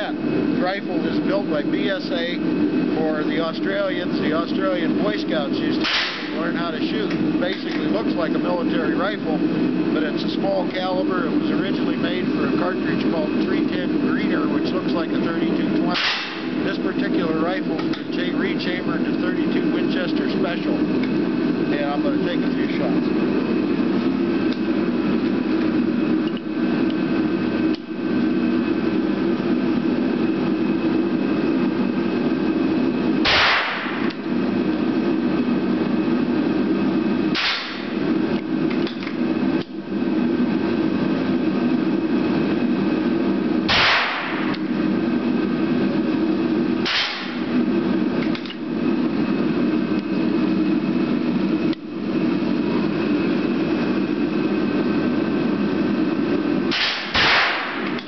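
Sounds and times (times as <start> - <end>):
steady low hum: 0.0 - 58.0
rifle shots: 33.2 - 34.1, 43.7 - 44.4, 46.9 - 47.3, 56.7 - 57.8.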